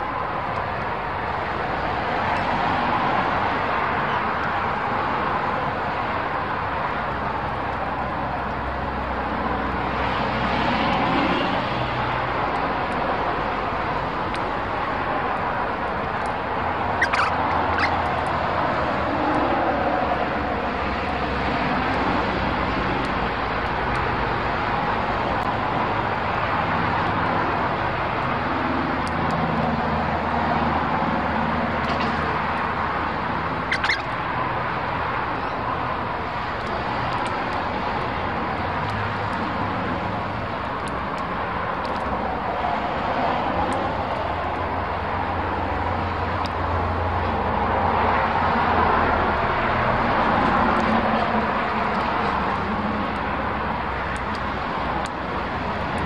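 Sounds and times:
rushing outdoor noise with hum: 0.0s - 56.0s
bird chirps: 17.0s - 18.0s, 33.7s - 34.2s.

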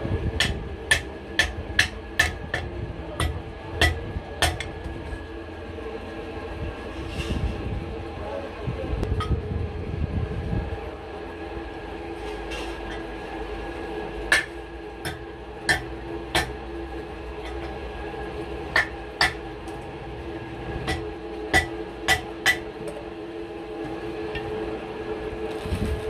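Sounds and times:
steady mechanical hum: 0.0s - 26.0s
hammer striking metal: 0.4s - 4.7s, 14.3s - 16.6s, 18.7s - 19.4s, 20.9s - 22.7s.

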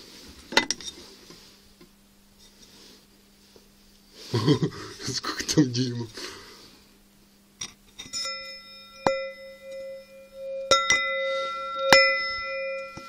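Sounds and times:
metal disc struck ringing: 8.0s - 13.0s.

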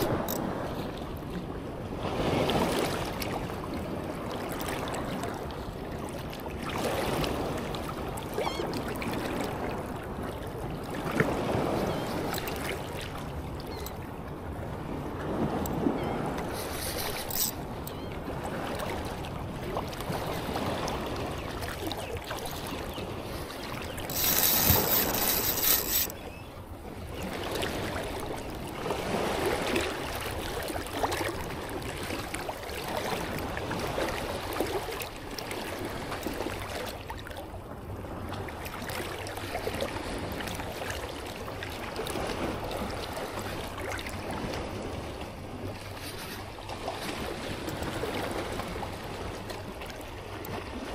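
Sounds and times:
ocean surf washing ashore: 6.6s - 26.2s
wind on microphone: 22.5s - 26.3s.

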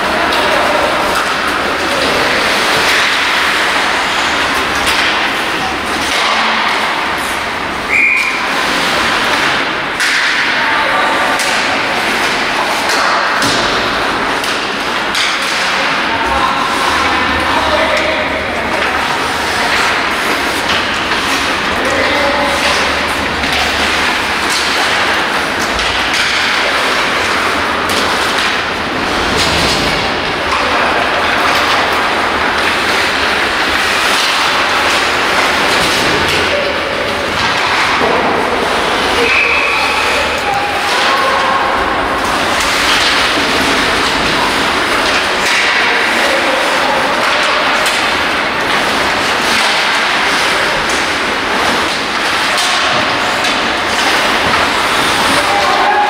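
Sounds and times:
hockey sticks and puck clacking: 0.0s - 56.0s
rink noise rushing: 0.0s - 56.0s
steady hall hiss: 0.0s - 56.0s
players shouting: 53.5s - 56.0s.

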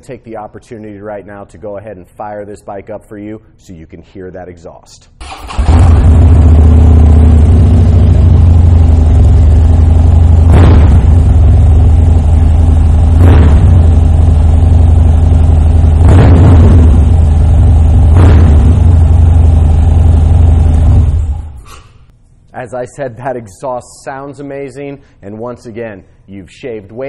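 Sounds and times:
motorcycle engine idling: 5.5s - 16.0s, 16.7s - 21.5s.

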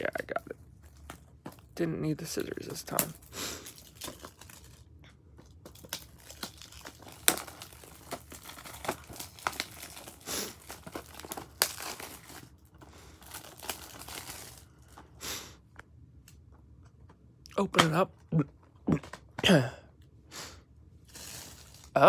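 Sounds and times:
plastic wrap crinkling and tearing: 0.3s - 15.2s, 21.0s - 22.0s.

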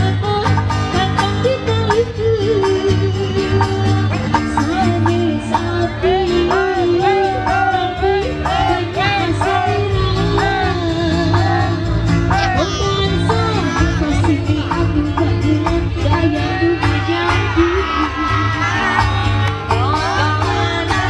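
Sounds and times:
person singing high melody: 12.3s - 14.7s.

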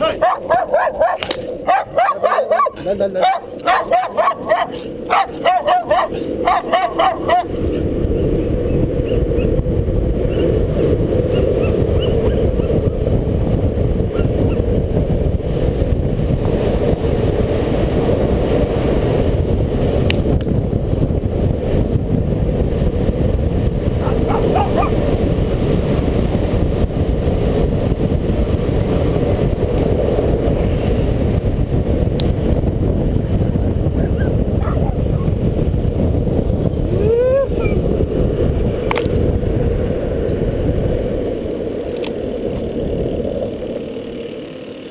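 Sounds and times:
dog barking: 0.0s - 7.5s, 24.0s - 25.0s, 34.2s - 35.0s
longboard wheels rolling on asphalt: 0.0s - 44.9s
wind rumble on microphone: 0.0s - 44.9s.

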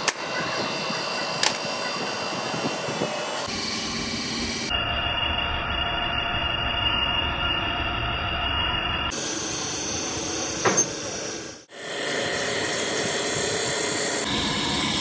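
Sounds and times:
grinding wheels on steel: 0.0s - 15.0s
coolant spray hissing: 9.1s - 15.0s.

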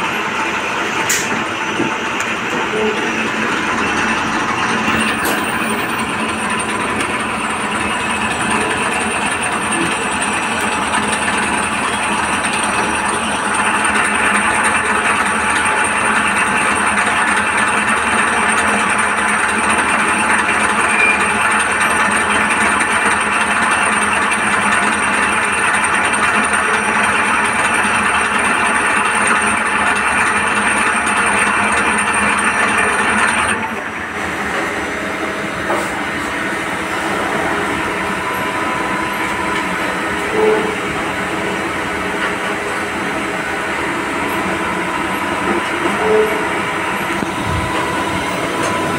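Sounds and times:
lathe spindle whirring and cutting: 0.0s - 48.9s.

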